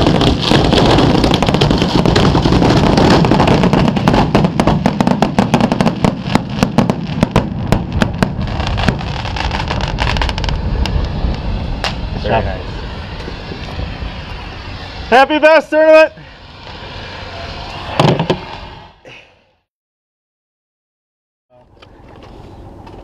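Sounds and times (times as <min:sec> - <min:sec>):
fireworks bangs and crackle: 0:00.0 - 0:19.2.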